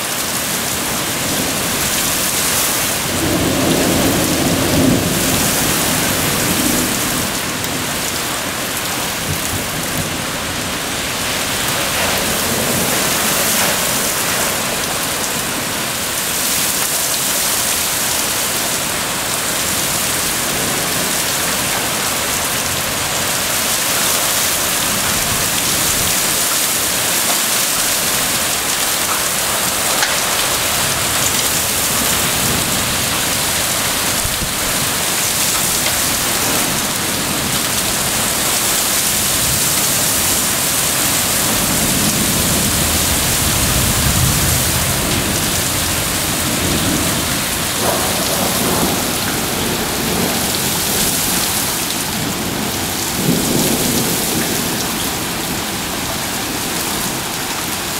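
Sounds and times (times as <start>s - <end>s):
heavy rain pouring: 0.0s - 57.9s
thunder rumbles: 0.2s - 56.8s.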